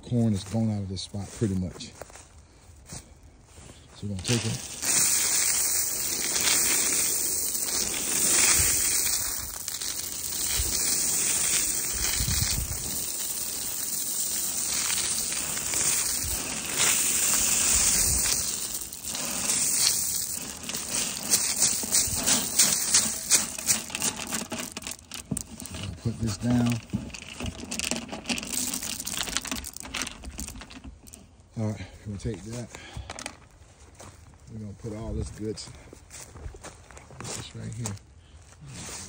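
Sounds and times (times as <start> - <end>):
dry leaves rustling and crunching: 4.0 - 30.7
corn kernels pouring: 4.0 - 31.2.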